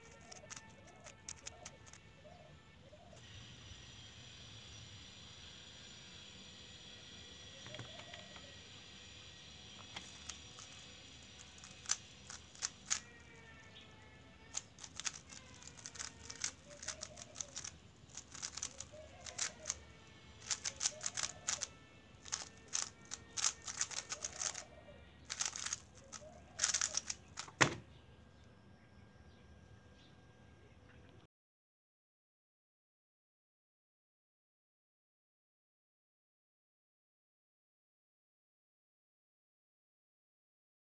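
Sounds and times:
speed cube plastic clicking: 0.0 - 2.2, 9.8 - 27.7.

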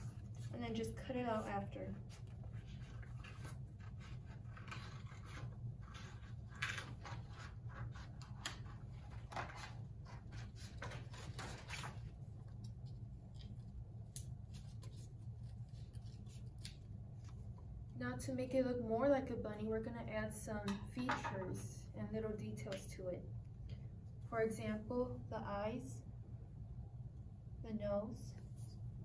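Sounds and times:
scissors snipping paper: 12.6 - 17.4.

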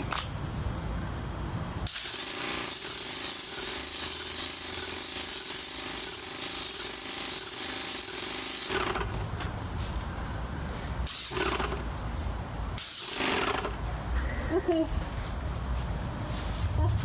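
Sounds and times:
paint sprayer hissing: 1.9 - 9.3, 11.0 - 12.0, 12.8 - 13.8.

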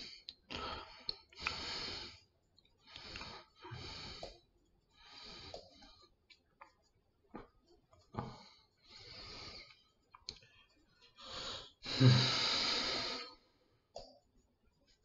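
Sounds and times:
man breathing heavily: 0.0 - 6.0, 8.2 - 9.8, 11.0 - 13.5.

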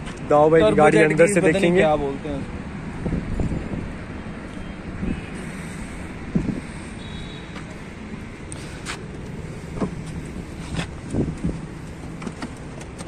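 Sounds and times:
outdoor background noise: 0.0 - 13.0
knocks and thumps in car seat: 9.7 - 13.0.

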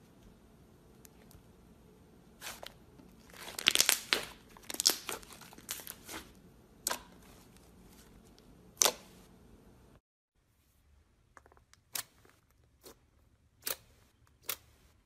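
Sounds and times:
slime crackling and popping: 3.2 - 7.1.

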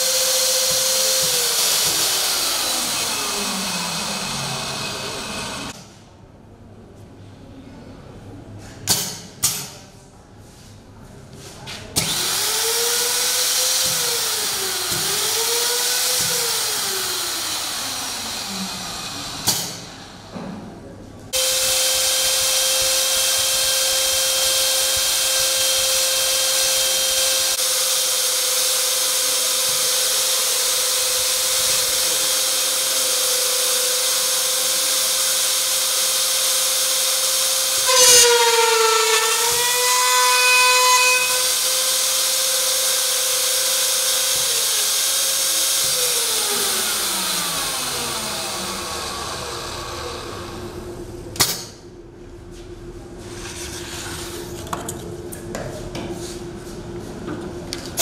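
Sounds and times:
electric router motor whining: 0.0 - 5.8, 12.1 - 20.3, 21.4 - 50.9.

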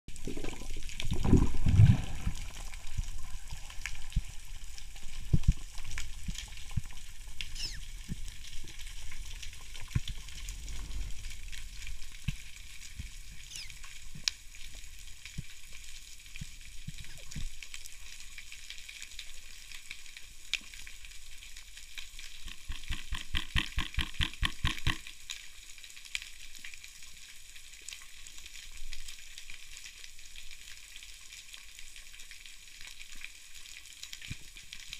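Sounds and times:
rush of water: 0.1 - 18.5
underwater crackling: 0.1 - 25.3
sharp underwater clicks and knocks: 22.3 - 25.1.

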